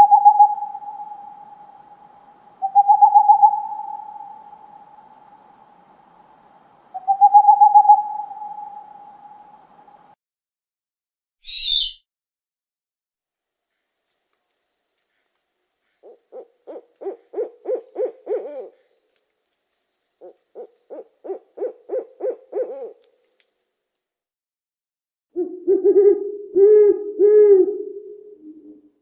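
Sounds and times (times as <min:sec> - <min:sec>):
owl hooting: 0:00.0 - 0:05.8, 0:06.9 - 0:10.1, 0:11.4 - 0:12.0, 0:16.0 - 0:18.9, 0:20.2 - 0:23.1.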